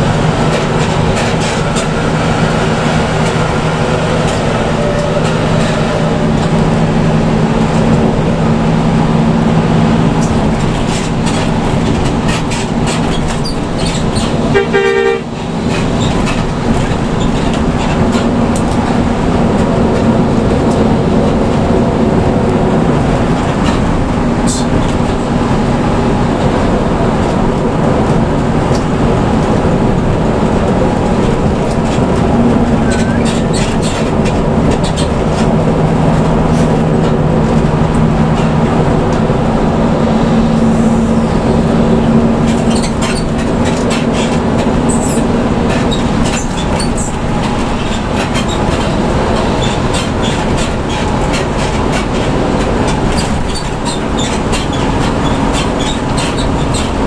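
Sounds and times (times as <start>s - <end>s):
bus engine and road noise: 0.0s - 57.0s
horn blast: 14.5s - 15.3s.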